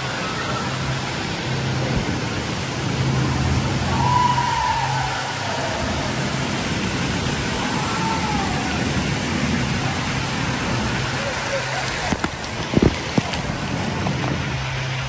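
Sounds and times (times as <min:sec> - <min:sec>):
low steady hum: 0:00.0 - 0:15.0
water splashing over camera: 0:00.0 - 0:15.0
waterfall rushing: 0:00.0 - 0:15.0.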